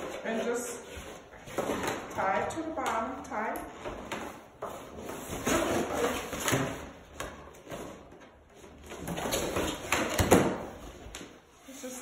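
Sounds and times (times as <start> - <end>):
balloons rubbing and squeaking: 4.4 - 10.0.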